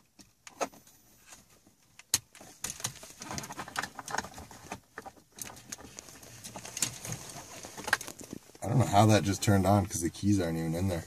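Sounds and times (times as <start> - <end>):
plastic scraping: 2.4 - 8.6.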